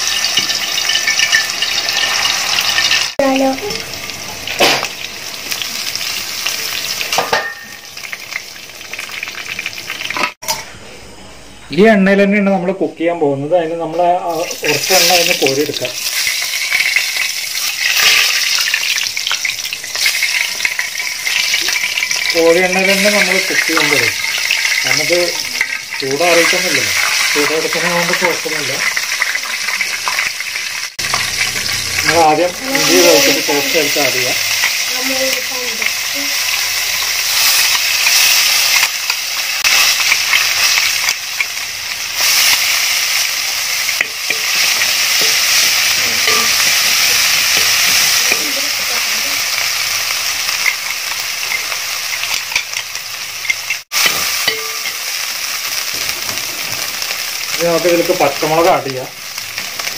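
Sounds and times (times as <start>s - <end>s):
metal ladle stirring oil: 0.0s - 3.0s, 22.9s - 27.5s, 50.5s - 55.1s
oil sizzling in metal pan: 0.0s - 10.7s, 13.9s - 59.9s.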